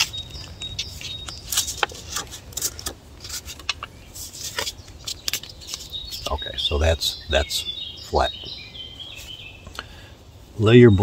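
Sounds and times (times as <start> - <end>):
sandpaper crackling and rustling: 0.0 - 6.3.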